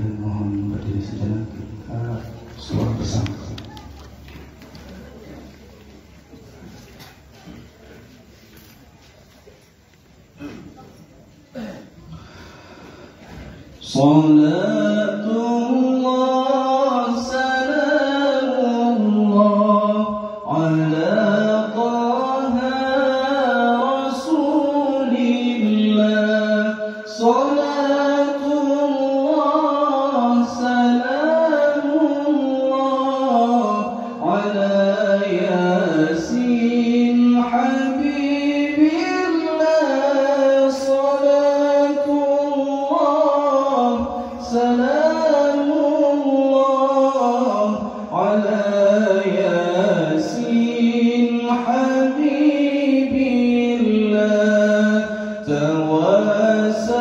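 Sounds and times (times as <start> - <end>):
man chanting into a microphone: 0.0 - 3.8, 11.7 - 57.0.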